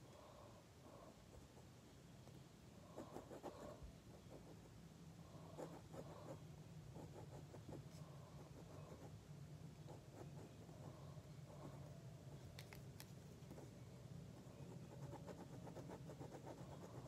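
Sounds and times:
pen scratching on paper: 0:03.0 - 0:04.6, 0:05.5 - 0:09.1, 0:14.7 - 0:17.0.

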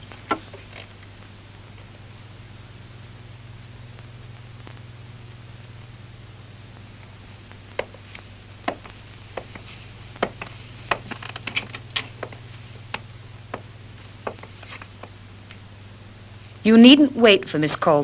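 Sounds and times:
sharp clicks and taps: 0:07.7 - 0:15.6.

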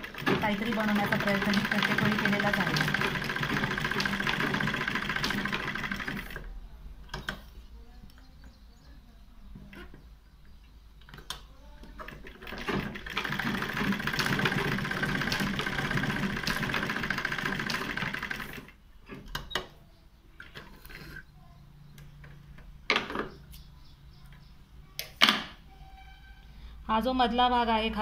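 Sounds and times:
sewing machine stitching: 0:00.0 - 0:06.5, 0:12.0 - 0:19.4.

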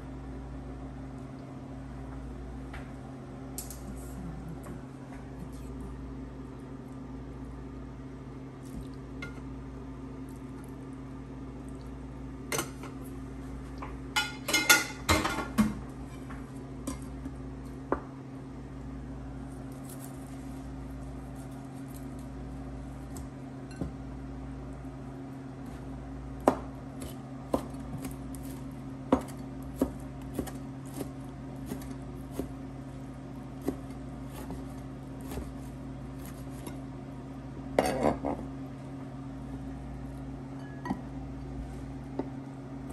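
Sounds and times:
steady low hum: 0:00.0 - 0:42.9
metal pan and utensils clattering: 0:14.2 - 0:15.5.

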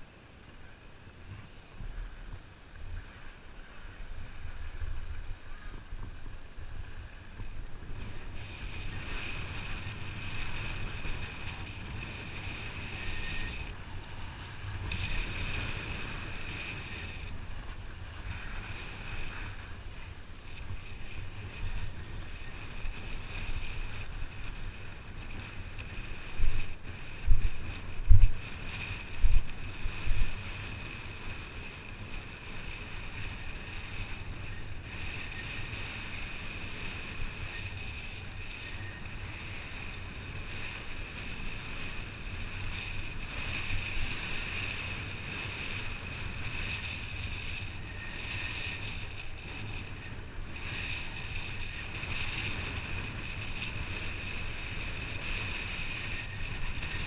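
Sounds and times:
skis scraping on snow: 0:00.0 - 0:57.0
wind buffeting microphone: 0:00.0 - 0:57.0.

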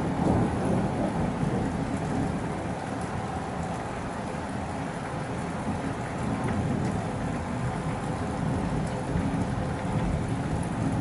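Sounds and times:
thunder rumbling: 0:00.0 - 0:02.4
rain falling: 0:00.0 - 0:11.0.

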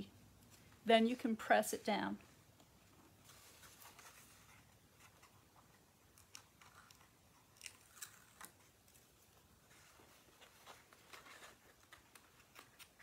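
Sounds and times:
soft paper clicks and rustles: 0:02.6 - 0:13.0.

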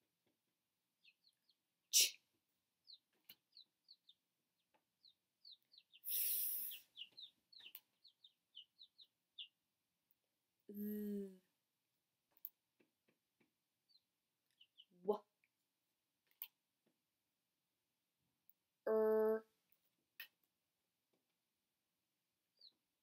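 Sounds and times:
small bird chirping: 0:01.0 - 0:09.7, 0:12.3 - 0:15.6, 0:22.5 - 0:23.0
woman making short voice sounds: 0:18.9 - 0:19.5.

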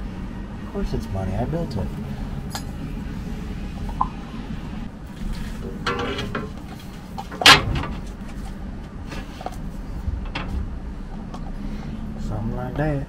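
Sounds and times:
metal scraping on metal: 0:05.1 - 0:08.5.

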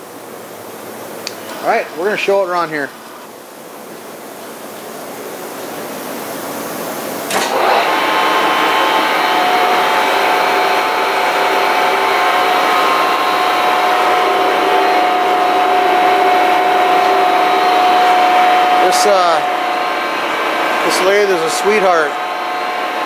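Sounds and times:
lathe gear whine: 0:07.3 - 0:23.0
motor hum: 0:07.3 - 0:23.0.

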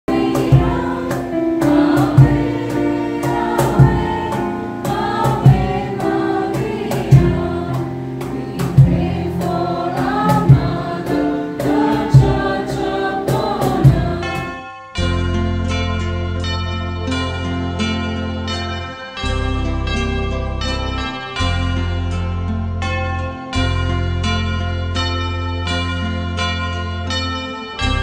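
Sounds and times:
group singing a hymn: 0:00.0 - 0:14.6
digital piano: 0:00.0 - 0:28.0
steady beat: 0:00.1 - 0:14.6.

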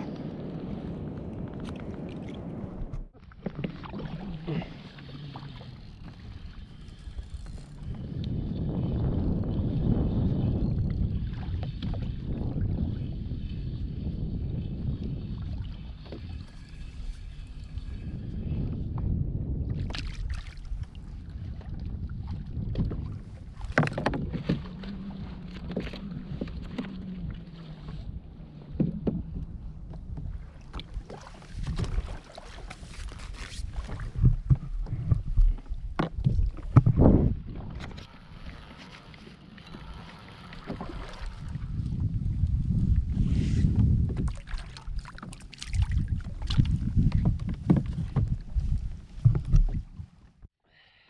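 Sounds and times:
wind on microphone: 0:00.0 - 0:50.5
water washing around kayak: 0:01.7 - 0:06.8, 0:19.8 - 0:50.3.

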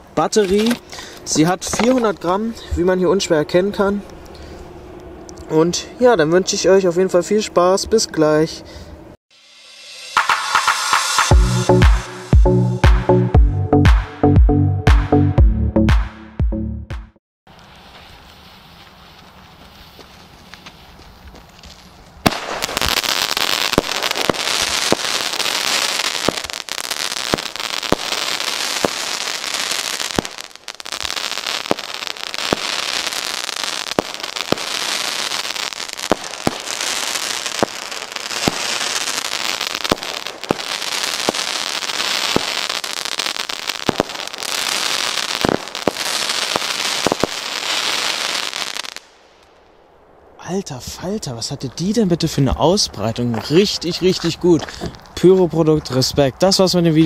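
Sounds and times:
firework crackling: 0:09.4 - 0:12.1, 0:17.5 - 0:49.8.

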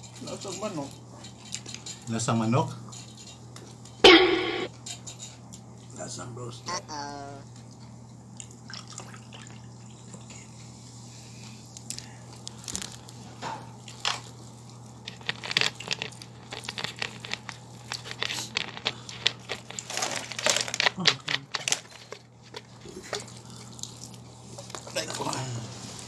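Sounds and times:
steady low hum: 0:04.0 - 0:04.8
chicken pulled apart and eaten: 0:11.7 - 0:13.2, 0:13.8 - 0:26.0.

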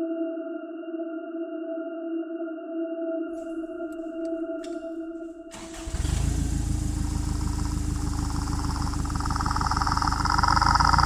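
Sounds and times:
pulsing engine-like rumble: 0:04.7 - 0:11.0.

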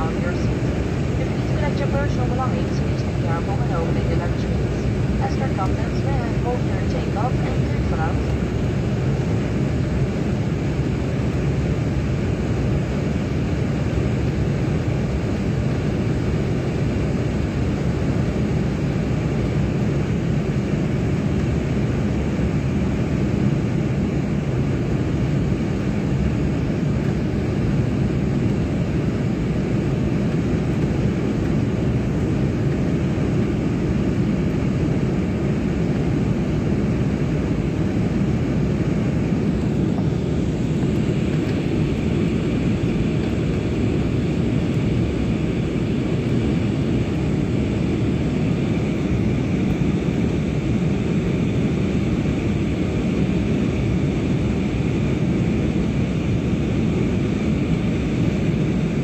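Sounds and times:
jet cabin engine and airflow: 0:00.0 - 0:59.0.

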